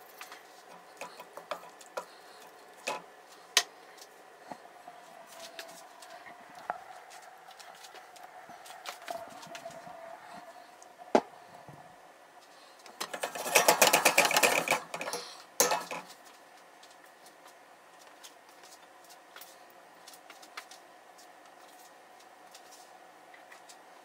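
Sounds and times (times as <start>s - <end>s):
low steady hum: 0.0s - 24.0s
utensils clattering against cookware: 13.0s - 16.1s.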